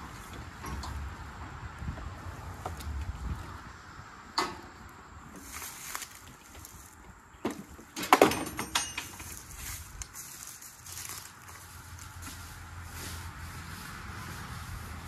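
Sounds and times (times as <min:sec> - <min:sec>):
metal trailer clanking: 0:00.0 - 0:03.2, 0:04.3 - 0:04.8, 0:07.6 - 0:09.6
footsteps through dry leaves: 0:05.4 - 0:07.0, 0:09.0 - 0:15.0.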